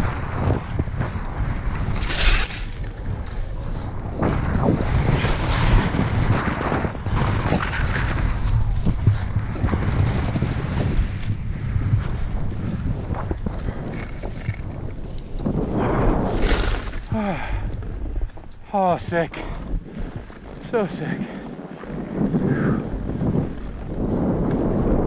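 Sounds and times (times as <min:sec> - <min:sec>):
wind buffeting microphone: 0:00.0 - 0:25.0
skis swishing through snow: 0:01.2 - 0:17.1, 0:17.8 - 0:25.0.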